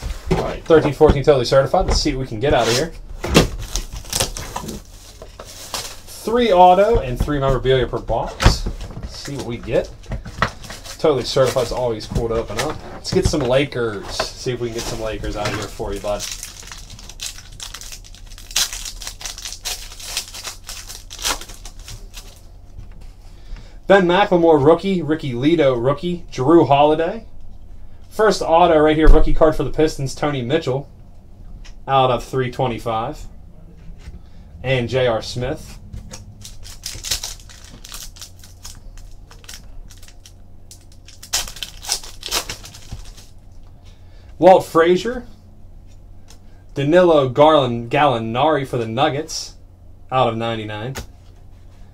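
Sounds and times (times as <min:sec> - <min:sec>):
foil wrapper crinkling and tearing: 0:03.5 - 0:06.9, 0:14.6 - 0:22.5, 0:36.1 - 0:43.4.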